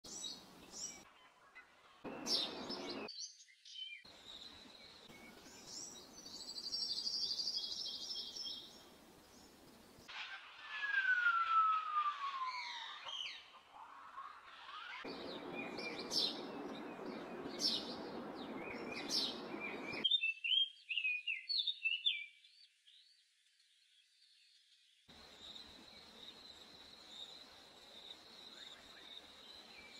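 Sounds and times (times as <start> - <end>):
birds singing and chirping: 0.1 - 9.6, 10.7 - 23.2
falling bird whistle: 10.2 - 13.6.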